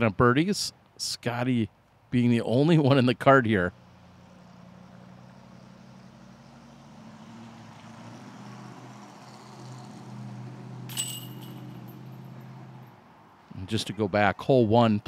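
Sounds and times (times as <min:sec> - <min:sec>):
vehicle engine humming: 0:03.3 - 0:14.0
short sharp high ring: 0:10.9 - 0:12.0.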